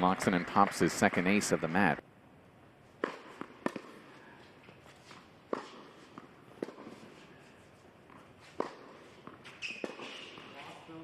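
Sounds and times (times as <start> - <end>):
quiet hall hum: 0.0 - 11.0
sharp knocks on hard court: 3.0 - 4.1, 8.6 - 9.0.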